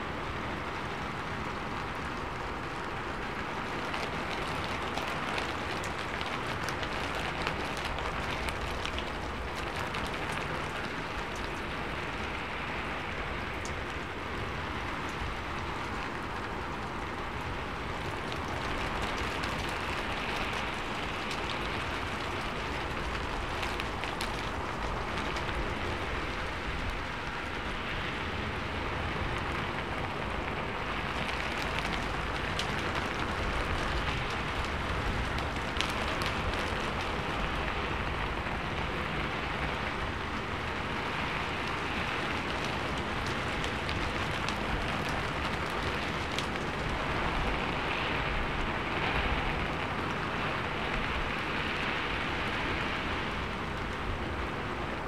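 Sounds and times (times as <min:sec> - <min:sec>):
rain on a metal roof: 0:00.0 - 0:55.0.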